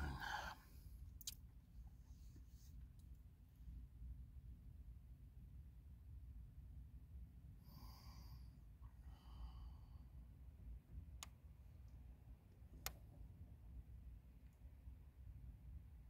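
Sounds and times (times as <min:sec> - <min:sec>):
faint breath: 0:00.0 - 0:01.0, 0:07.6 - 0:10.4
small sharp clicks: 0:01.2 - 0:01.4, 0:11.1 - 0:13.1.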